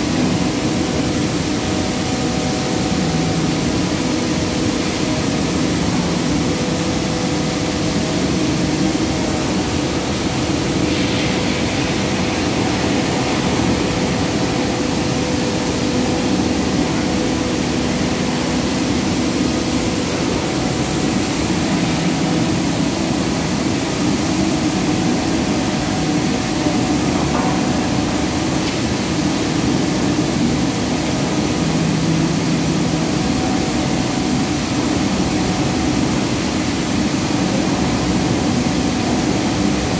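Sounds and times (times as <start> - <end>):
mill machinery running: 0.0 - 39.9.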